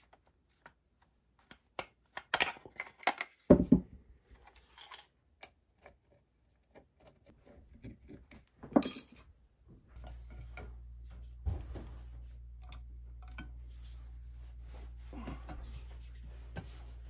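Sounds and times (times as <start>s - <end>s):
steady low hum: 9.0s - 17.0s.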